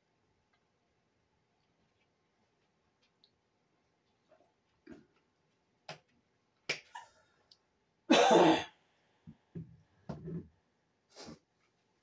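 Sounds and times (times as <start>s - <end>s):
person coughing: 8.1s - 8.8s.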